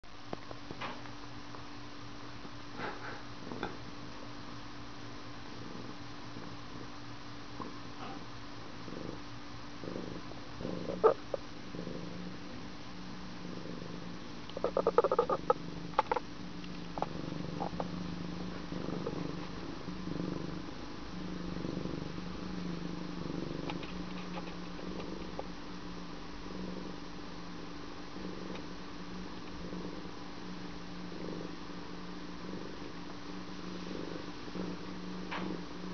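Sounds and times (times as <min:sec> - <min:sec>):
cat purring: 0:05.4 - 0:35.9
clicks and rustles: 0:23.6 - 0:25.5.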